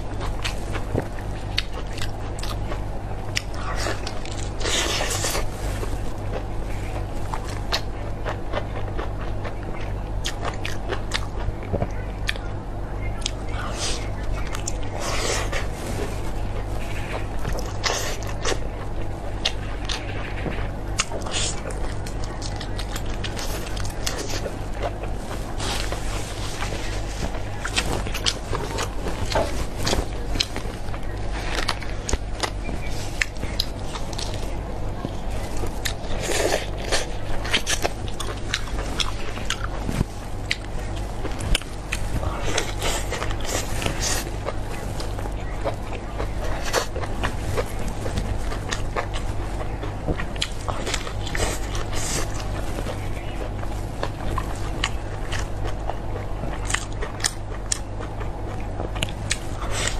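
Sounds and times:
chewing grilled sausage: 0:00.0 - 0:59.9
steady low hum: 0:00.0 - 0:59.9.

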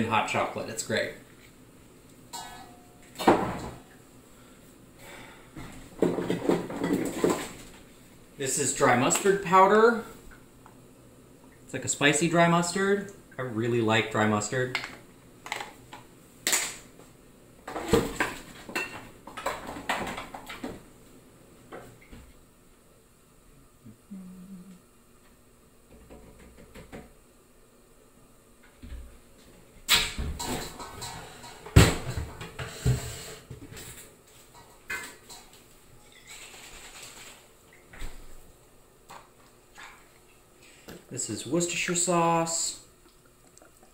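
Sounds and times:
kitchen utensils clinking: 0:02.3 - 0:03.6
kitchen knocks and clatter: 0:02.3 - 0:03.8, 0:05.6 - 0:07.7, 0:17.7 - 0:20.8, 0:29.9 - 0:35.5.

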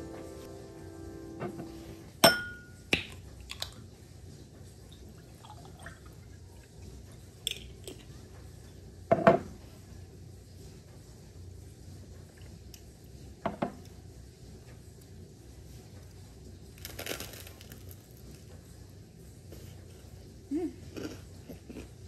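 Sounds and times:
dishes clinking and knocking: 0:01.4 - 0:03.2, 0:09.1 - 0:09.6, 0:13.4 - 0:13.8.

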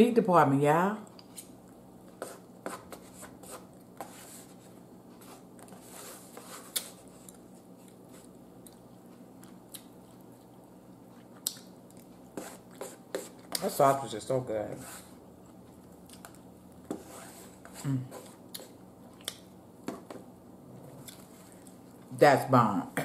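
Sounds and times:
faint steady hum: 0:00.0 - 0:23.0
person chewing food: 0:05.2 - 0:13.6, 0:15.1 - 0:22.1.

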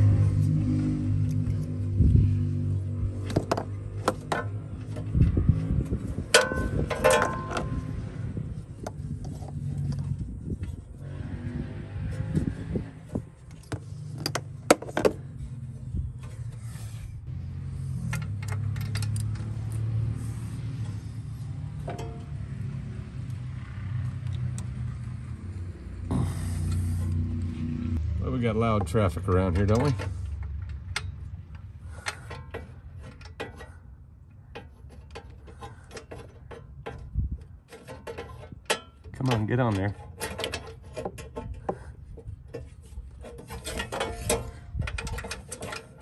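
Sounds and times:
low rumble of traffic: 0:00.0 - 0:46.0
wrench metallic clicks and knocks: 0:34.4 - 0:46.0.

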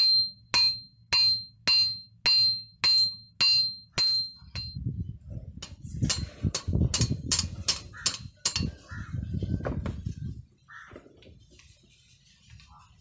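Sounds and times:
hammer striking steel: 0:00.0 - 0:04.8, 0:05.6 - 0:08.8.

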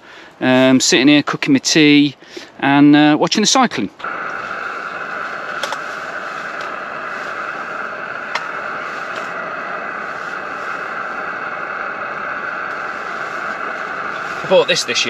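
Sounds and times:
camping stove and pan hissing: 0:04.0 - 0:15.0.

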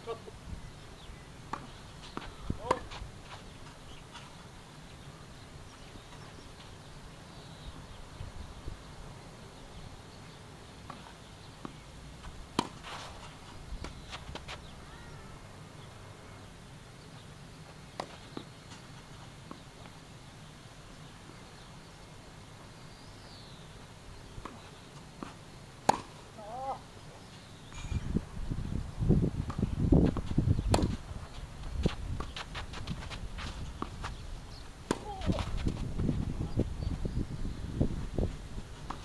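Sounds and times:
tennis balls bouncing on court: 0:01.5 - 0:04.4, 0:10.8 - 0:14.9, 0:17.9 - 0:18.8, 0:24.4 - 0:26.8, 0:29.4 - 0:34.2, 0:34.8 - 0:36.0
tennis balls struck by racquets: 0:01.5 - 0:04.4, 0:10.8 - 0:14.8, 0:24.4 - 0:26.8, 0:29.4 - 0:31.0, 0:34.8 - 0:35.6.

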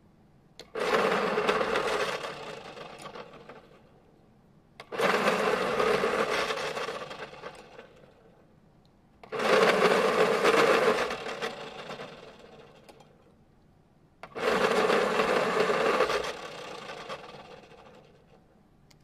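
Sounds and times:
pencil sharpener grinding: 0:05.0 - 0:07.3, 0:09.3 - 0:12.1, 0:14.4 - 0:17.2.

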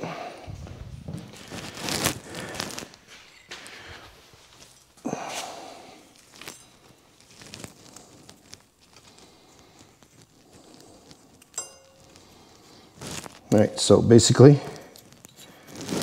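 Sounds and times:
footsteps on concrete floor: 0:00.4 - 0:05.6.

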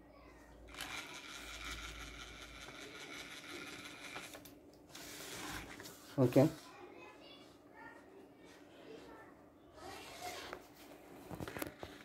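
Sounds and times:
small motors whirring: 0:00.7 - 0:04.5.

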